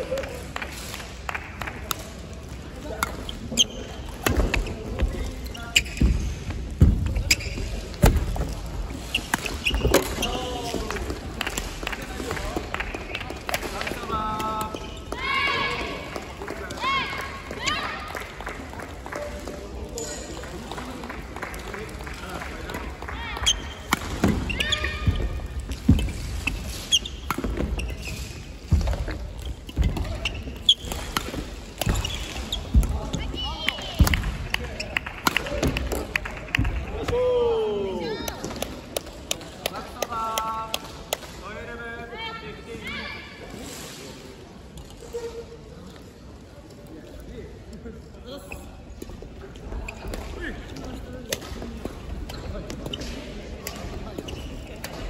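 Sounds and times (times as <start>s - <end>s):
shoes squeaking on wooden floor: 3.3s - 10.9s, 23.4s - 31.2s, 31.8s - 33.4s
rackets hitting shuttlecock: 27.3s - 30.2s, 30.8s - 32.9s.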